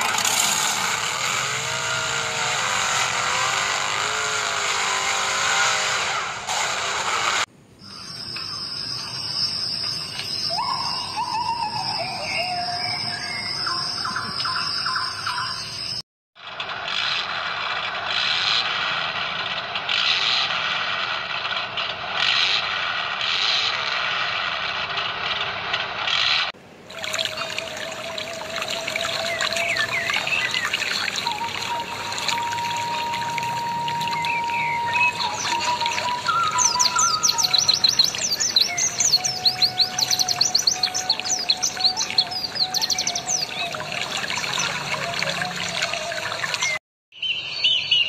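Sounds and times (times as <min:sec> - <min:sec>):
electric motor and gearbox whining: 0:00.0 - 0:07.5, 0:16.4 - 0:26.5, 0:27.3 - 0:46.8
toy crawler drivetrain clattering: 0:00.0 - 0:07.5, 0:16.4 - 0:46.8.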